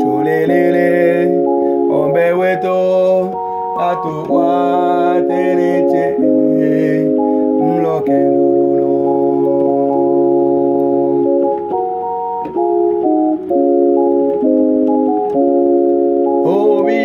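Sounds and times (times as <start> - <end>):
person singing: 0.0 - 11.8, 16.3 - 17.0
electronic organ chords: 0.0 - 17.0.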